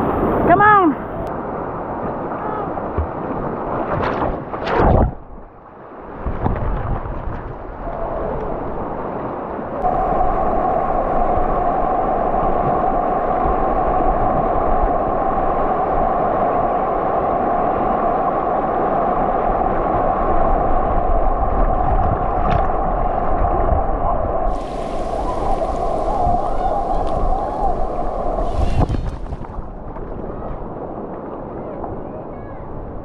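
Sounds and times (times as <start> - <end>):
river rapids rushing and splashing: 9.8 - 16.5, 24.5 - 29.6.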